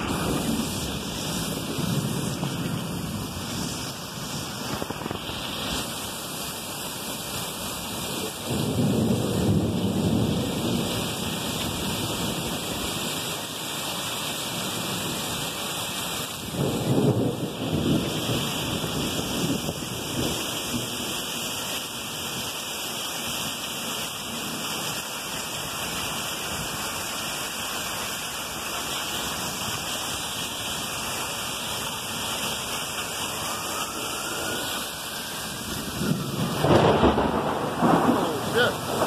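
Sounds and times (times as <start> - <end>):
thunder rumbling: 0.0 - 6.4, 7.2 - 13.4, 16.4 - 22.4, 32.2 - 39.0
heavy rain downpour: 0.0 - 39.0.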